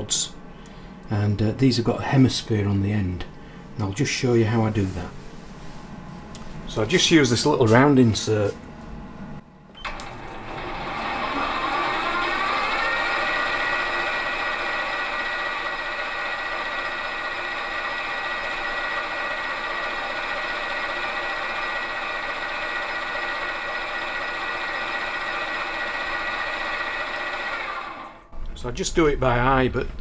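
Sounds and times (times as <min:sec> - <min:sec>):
metal lathe whining: 0:09.8 - 0:28.3.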